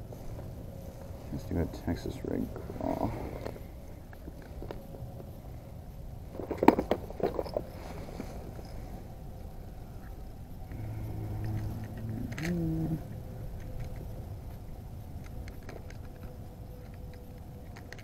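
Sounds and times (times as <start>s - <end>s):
low drawn-out voice-like tone: 1.4s - 3.4s, 10.7s - 13.2s.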